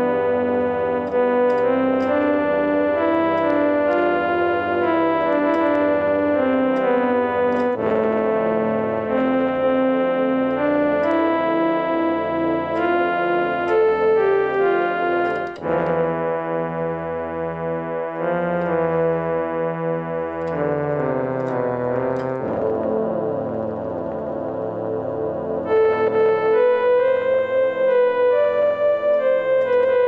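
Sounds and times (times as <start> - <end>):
electronic music with keyboard chords: 0.0 - 30.0.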